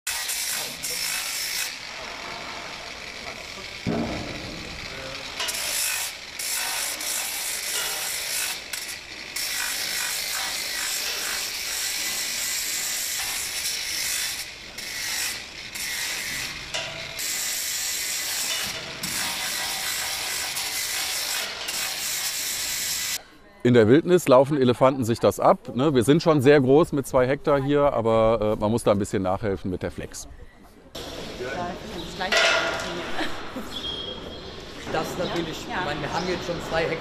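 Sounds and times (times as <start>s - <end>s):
angle grinder grinding: 0.1s - 23.2s.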